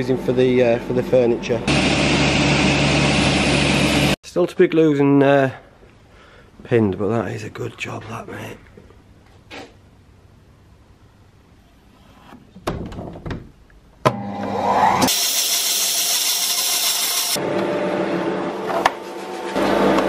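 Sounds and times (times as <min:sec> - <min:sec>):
woodworking machine running: 0:00.1 - 0:04.2, 0:15.1 - 0:20.0.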